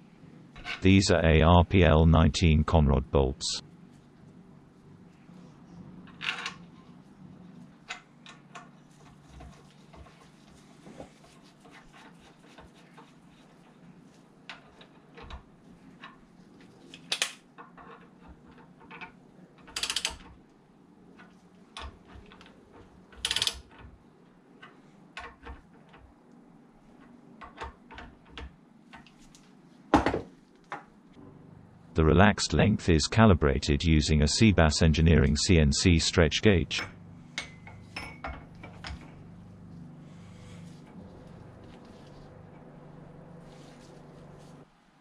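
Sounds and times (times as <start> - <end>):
faint low hum: 0.0 - 7.8, 31.2 - 44.6.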